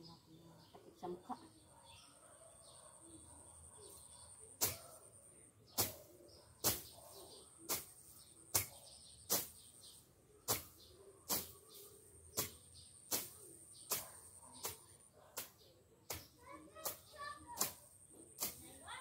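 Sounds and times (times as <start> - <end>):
hand tool striking ground: 4.6 - 4.9, 5.8 - 6.0, 6.6 - 6.9, 7.7 - 9.7, 10.5 - 11.6, 12.3 - 14.8, 15.4 - 17.8, 18.4 - 18.8.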